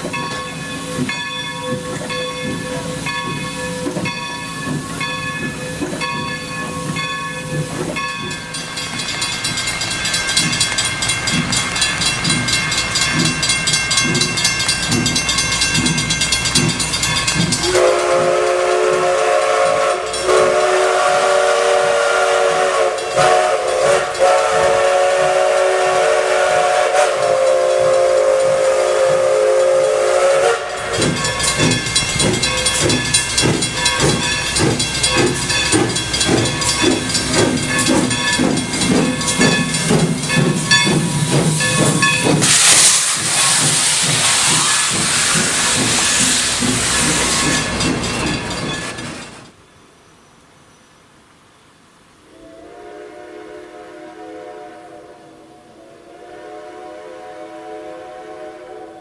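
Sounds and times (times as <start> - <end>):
crossing bell ringing: 0.0 - 21.4, 22.2 - 49.6
steam locomotive chuffing: 0.0 - 49.6
steam whistle blowing: 17.6 - 47.6, 52.3 - 59.0.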